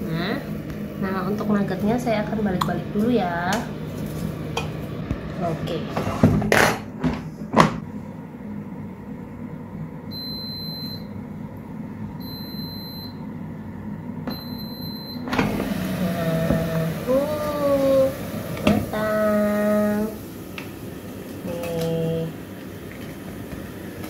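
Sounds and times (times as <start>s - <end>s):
air fryer fan humming: 0.0s - 24.0s
long beeps: 10.1s - 11.1s, 12.2s - 13.2s, 14.3s - 15.3s
air fryer basket knocking: 18.6s - 19.0s.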